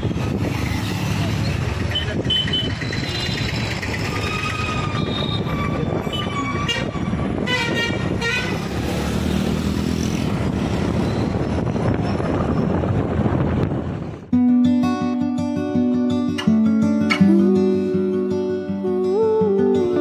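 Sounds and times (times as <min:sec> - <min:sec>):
wind noise: 0:00.0 - 0:01.1, 0:01.8 - 0:14.3
motorcycle engine: 0:00.0 - 0:14.3
vehicle horns tooting: 0:01.9 - 0:08.7.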